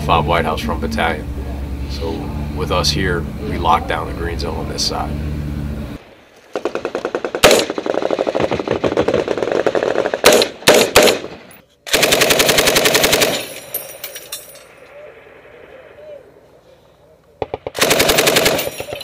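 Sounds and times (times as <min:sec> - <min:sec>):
automatic machine-gun fire: 0:06.5 - 0:11.3, 0:11.9 - 0:13.6, 0:17.4 - 0:19.0
loud separate gunshots: 0:06.6 - 0:13.5, 0:17.4 - 0:19.0.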